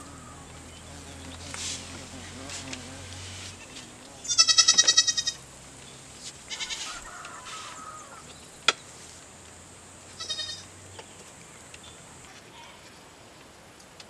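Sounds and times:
animal wavering call: 0:00.0 - 0:01.1.

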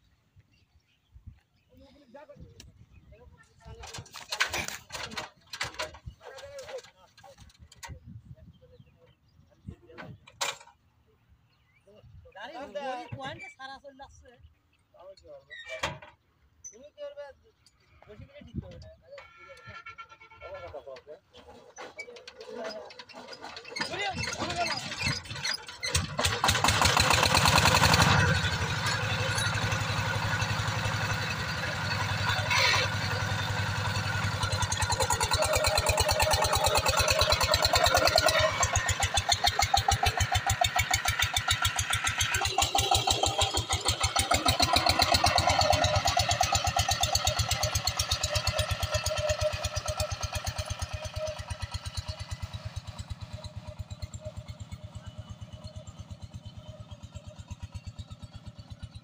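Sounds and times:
diesel engine chugging: 0:17.8 - 0:59.0.

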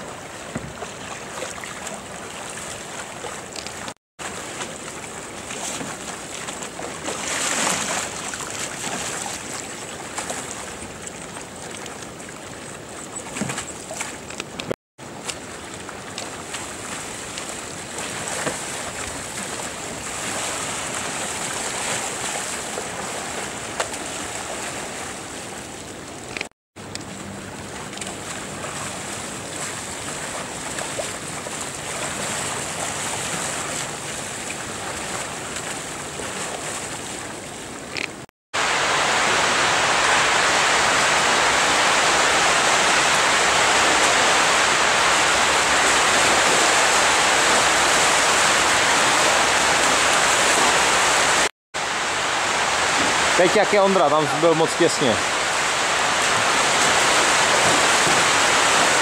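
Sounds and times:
moving water: 0:00.0 - 0:59.0
whitewater rushing: 0:04.3 - 0:10.9, 0:16.6 - 0:25.5, 0:38.6 - 0:59.0.

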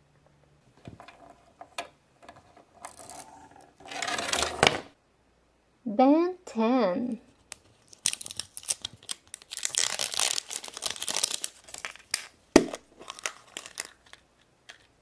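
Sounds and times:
packet crinkling: 0:07.4 - 0:15.0
plastic wrapper crinkling and tearing: 0:07.4 - 0:15.0
plastic egg halves snapping apart: 0:11.0 - 0:14.9.

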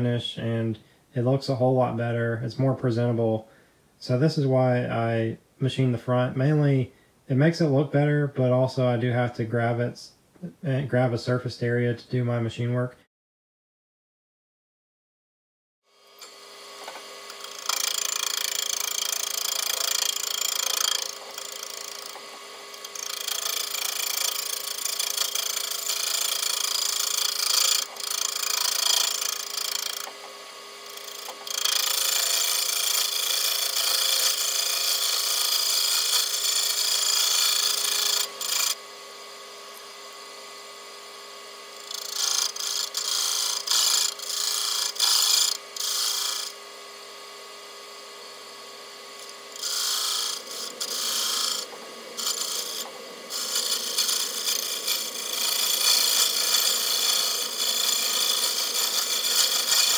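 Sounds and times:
lathe humming: 0:16.0 - 0:59.9
lathe tool cutting metal: 0:16.0 - 0:59.9.

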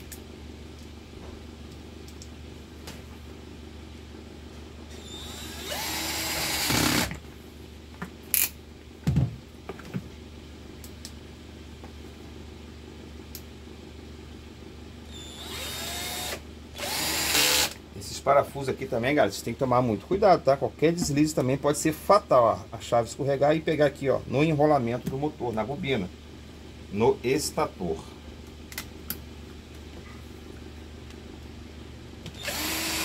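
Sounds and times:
cordless drill whining: 0:04.9 - 0:07.2, 0:15.1 - 0:17.8, 0:32.4 - 0:33.0.

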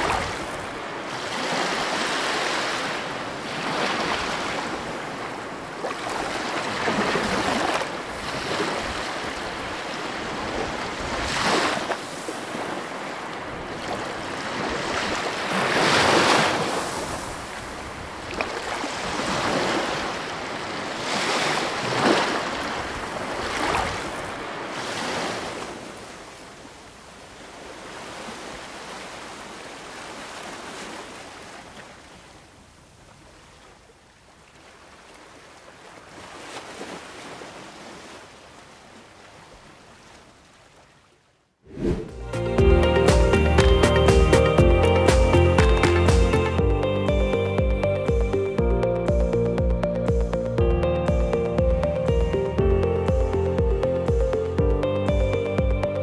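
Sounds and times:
sea waves washing onto beach: 0:00.0 - 0:40.9.

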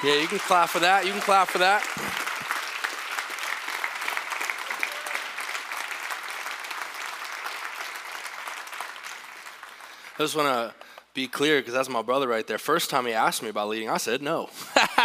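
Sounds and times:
congregation applauding: 0:00.0 - 0:11.2.

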